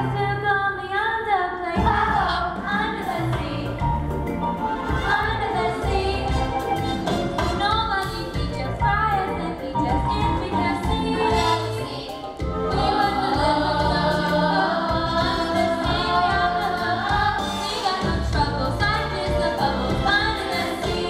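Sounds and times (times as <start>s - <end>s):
instrumental accompaniment: 1.8s - 21.0s
cast singing together: 10.2s - 21.0s.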